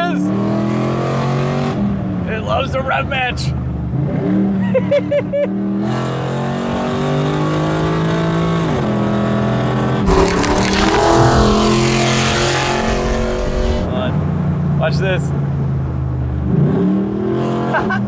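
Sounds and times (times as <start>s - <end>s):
car engine revving: 10.1s - 14.1s
wind rush: 10.1s - 14.1s.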